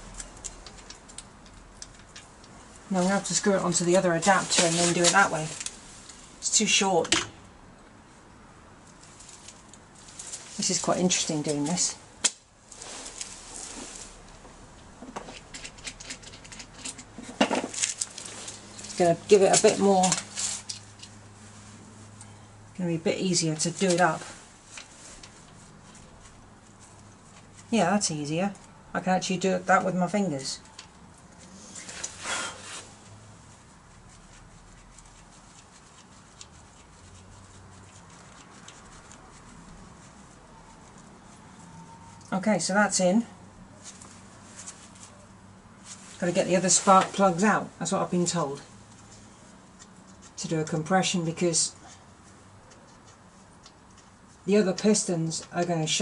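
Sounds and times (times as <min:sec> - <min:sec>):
faint scratching and small clicks: 0:00.1 - 0:02.8, 0:15.1 - 0:21.2, 0:34.0 - 0:41.1, 0:51.8 - 0:55.6.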